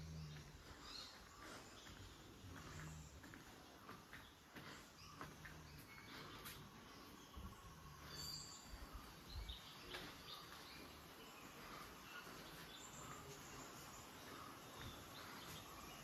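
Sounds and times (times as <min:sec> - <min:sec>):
faint bird chirps: 0:00.0 - 0:16.0.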